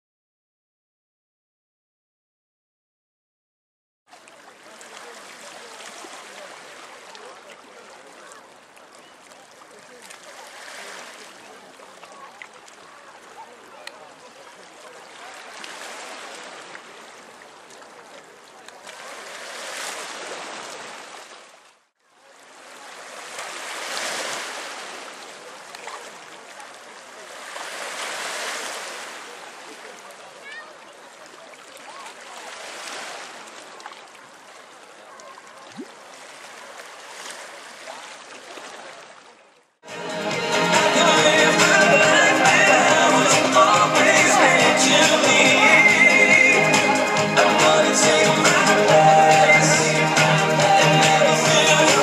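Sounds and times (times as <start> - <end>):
steady outdoor rushing noise: 39.9 - 52.0.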